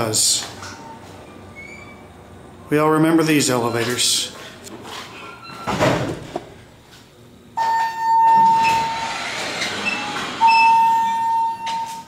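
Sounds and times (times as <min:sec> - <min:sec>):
elevator arrival chime: 0:07.6 - 0:09.2, 0:09.8 - 0:12.0
elevator doors sliding open: 0:07.6 - 0:12.0.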